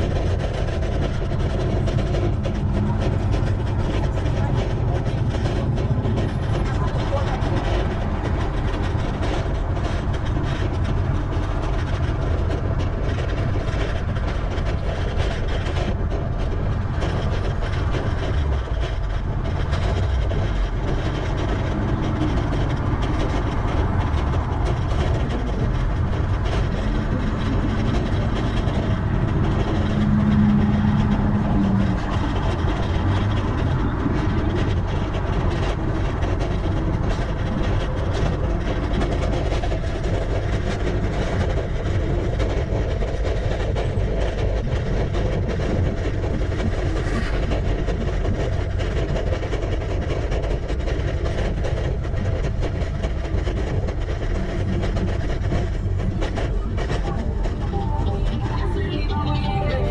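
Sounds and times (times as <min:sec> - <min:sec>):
road noise: 0:00.0 - 0:59.9
wind rumble: 0:00.0 - 0:59.9
low steady hum: 0:52.3 - 0:59.9.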